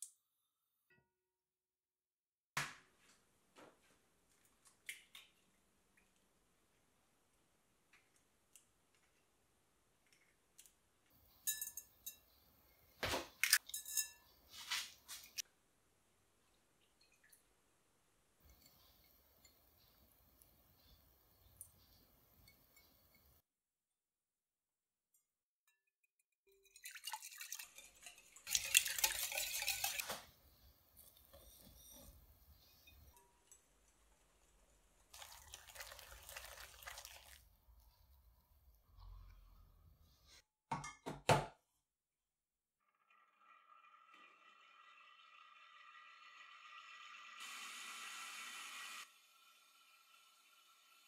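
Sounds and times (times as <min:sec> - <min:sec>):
whisk beating eggs in glass bowl: 0:26.6 - 0:30.2
flour pouring rustle: 0:35.1 - 0:37.5.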